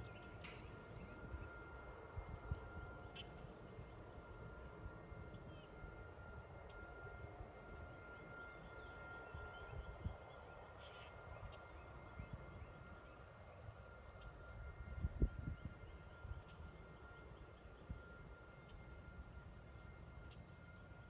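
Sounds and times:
thin steady tone: 0.0 - 21.0
faint bird chirps: 8.4 - 18.8
wind rumble on microphone: 14.5 - 16.8.

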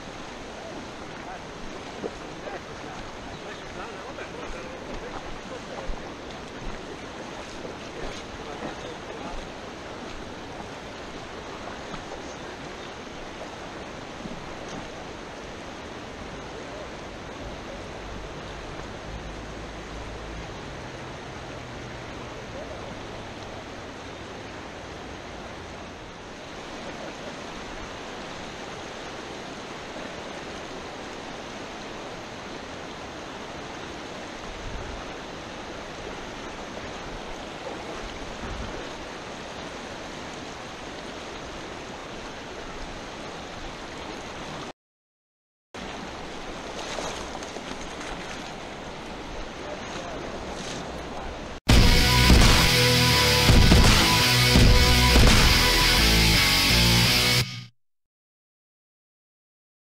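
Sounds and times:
river rushing over stones: 0.0 - 44.7, 45.8 - 56.0.

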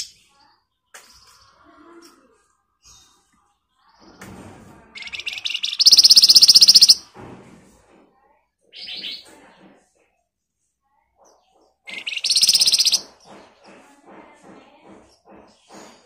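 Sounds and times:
bird singing fast trill: 5.0 - 7.0, 11.9 - 13.0.

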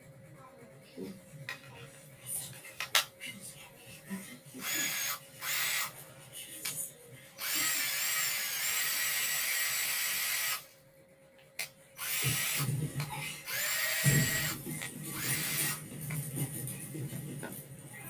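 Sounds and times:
cordless drill whining: 4.6 - 5.9, 7.4 - 10.6, 12.0 - 12.7, 13.5 - 14.6, 15.2 - 15.8.

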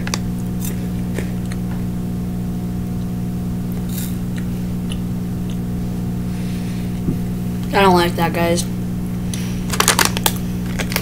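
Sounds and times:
low electrical hum: 0.0 - 11.0
chewing crunchy wafer: 9.3 - 11.0.

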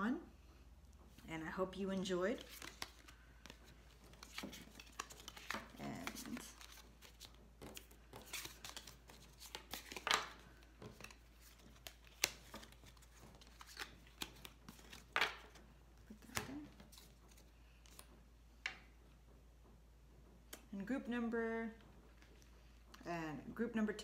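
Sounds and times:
cards sliding and flicking: 2.4 - 15.6.

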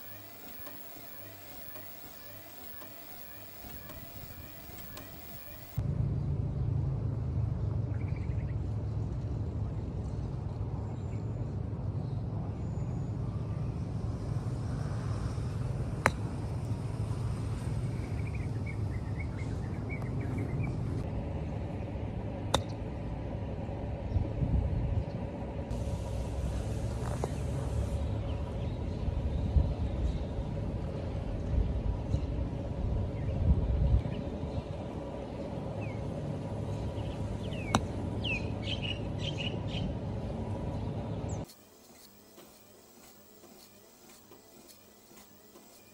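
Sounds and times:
bird chirping: 0.0 - 5.8
low outdoor background noise: 0.0 - 45.9
golf club striking ball: 16.0 - 16.4, 22.5 - 22.8.

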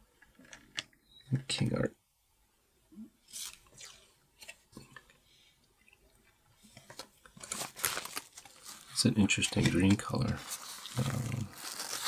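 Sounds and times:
paper card rustling: 6.9 - 12.0.

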